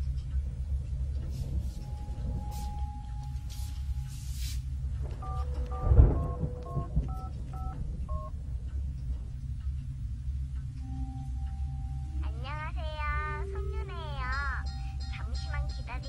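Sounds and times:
low rumbling drone: 0.0s - 16.0s
telephone keypad tones: 5.2s - 8.3s.

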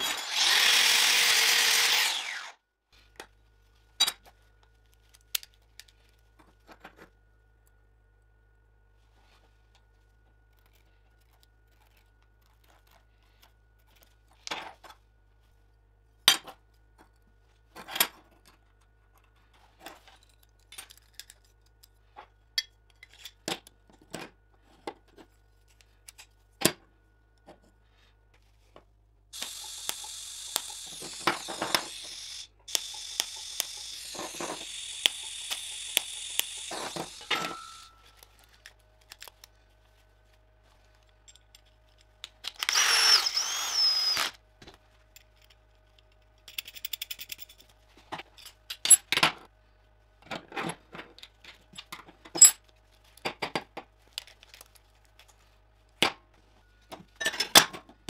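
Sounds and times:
metal parts clicking and clinking: 20.0s - 22.0s, 29.4s - 39.5s, 45.1s - 49.3s
loud steady hiss: 29.4s - 37.9s.

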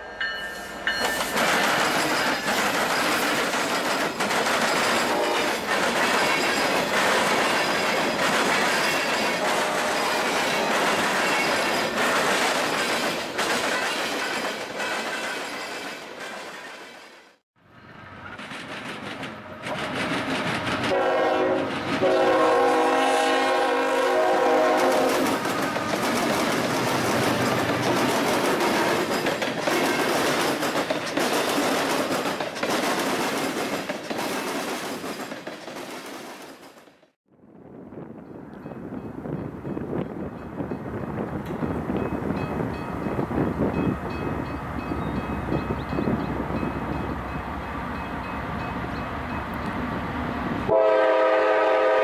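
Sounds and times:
freight train rumbling past: 0.0s - 52.0s
wheels clattering over rail joints: 0.9s - 17.0s, 18.2s - 21.0s, 25.0s - 36.9s.

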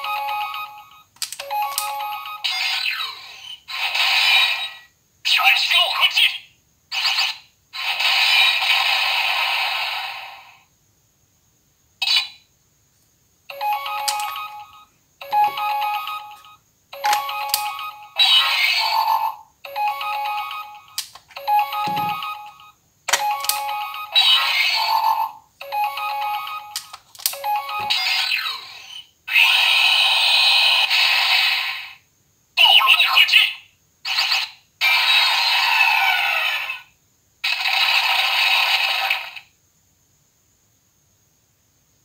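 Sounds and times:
toy electronic sound effects: 0.0s - 10.6s, 13.5s - 32.0s, 32.6s - 39.5s
sharp clicks: 1.2s - 1.9s, 20.9s - 21.3s
tinny musical jingles: 13.5s - 18.2s, 19.7s - 26.8s, 27.4s - 28.2s.

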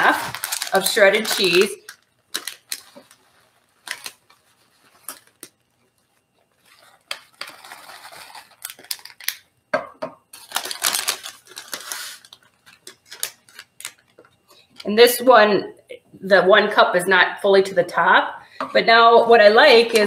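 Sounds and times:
plastic bag crinkling: 0.0s - 9.5s, 10.3s - 14.9s.

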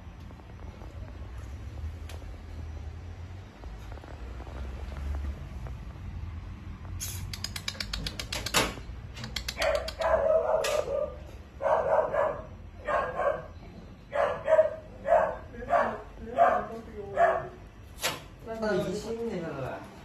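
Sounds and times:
dog barking: 9.6s - 17.6s.

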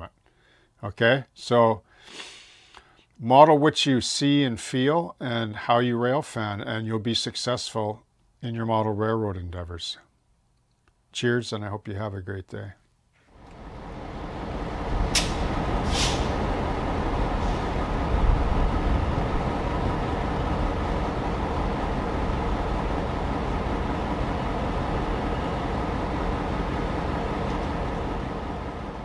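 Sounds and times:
diesel locomotive engine rumbling: 13.4s - 29.0s.

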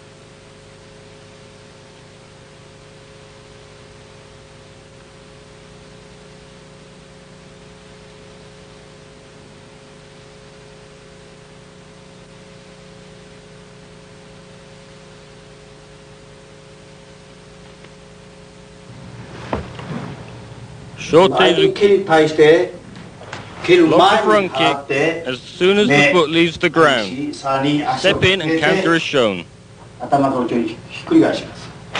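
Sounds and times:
faint steady hum: 0.0s - 31.9s
tape hiss: 0.0s - 31.9s.

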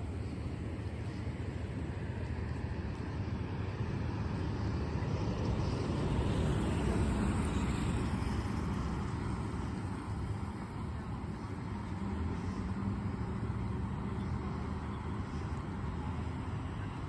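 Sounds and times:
low rumble of tyres and engine: 0.0s - 17.0s.

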